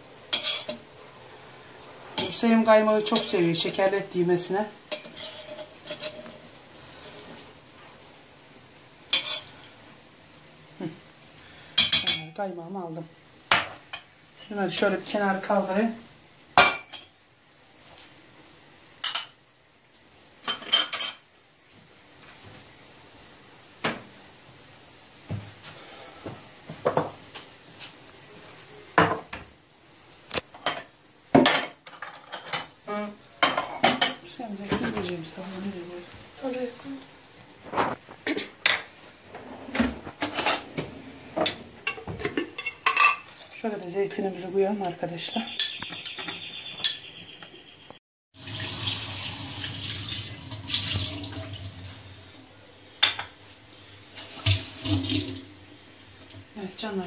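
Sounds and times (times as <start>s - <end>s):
tableware knocking and clinking: 30.6s - 32.7s.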